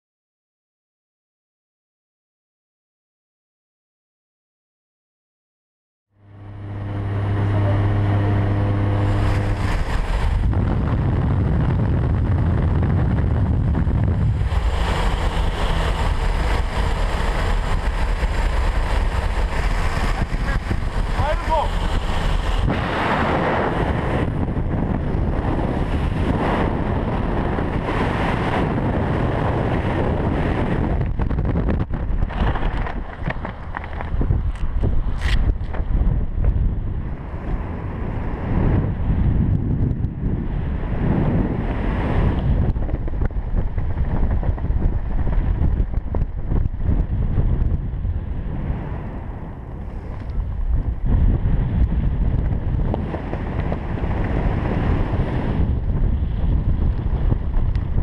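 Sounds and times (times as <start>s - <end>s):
parachute fluttering: 6.2s - 11.6s, 12.3s - 35.6s
wind blasting over microphone: 6.2s - 58.0s.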